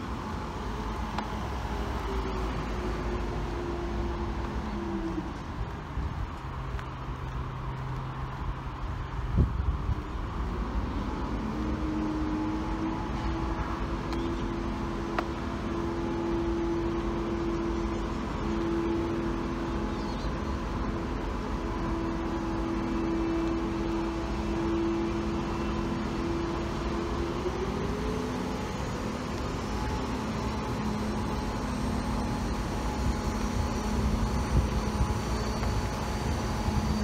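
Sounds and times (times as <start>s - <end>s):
traffic engine hum: 0.0s - 37.0s.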